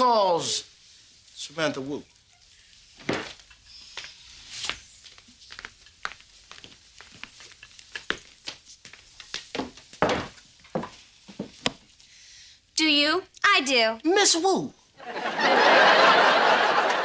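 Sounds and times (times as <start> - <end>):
footsteps on hard floor: 3.0 - 3.4, 5.1 - 12.0.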